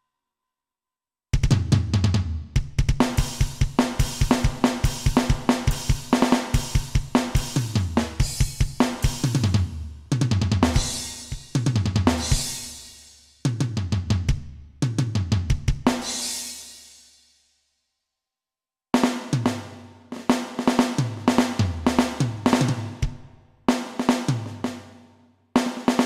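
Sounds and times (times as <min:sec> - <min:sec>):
fast kick drum strokes: 0:01.4 - 0:16.3, 0:19.0 - 0:24.8
snare and cymbal hits: 0:01.4 - 0:17.4, 0:19.0 - 0:25.0, 0:25.6 - 0:26.0.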